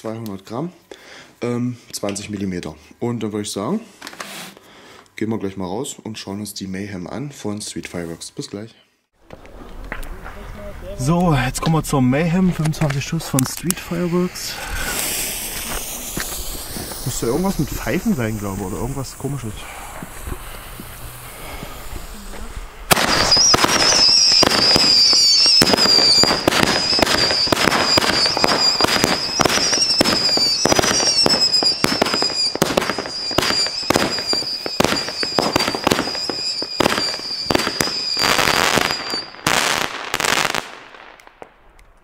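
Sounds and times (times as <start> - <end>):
fuse burning: 9.2 - 39.5
firework shots and crackles: 9.2 - 42.0
firework high whistle: 13.8 - 40.9.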